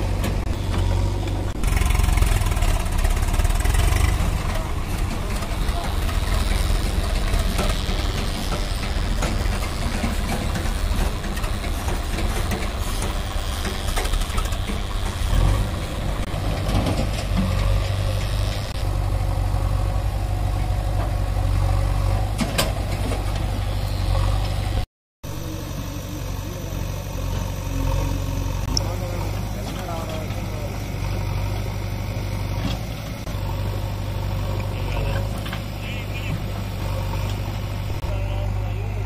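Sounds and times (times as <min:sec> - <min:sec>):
diesel engines idling: 0:00.0 - 0:39.0.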